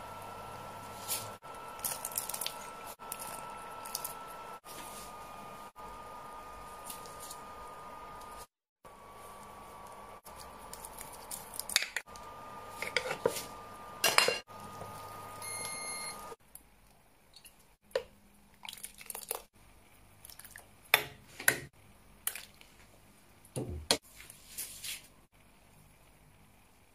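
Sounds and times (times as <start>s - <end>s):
steady hum: 0.0s - 16.4s.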